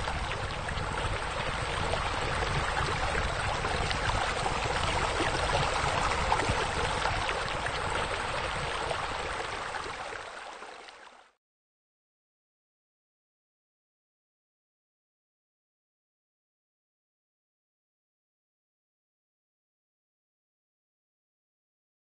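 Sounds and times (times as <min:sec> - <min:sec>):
running water: 0:00.0 - 0:11.4.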